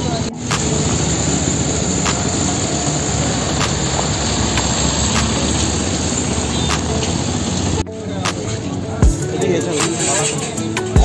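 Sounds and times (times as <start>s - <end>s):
vehicle engine running: 0.0s - 7.8s
street traffic: 0.0s - 11.0s.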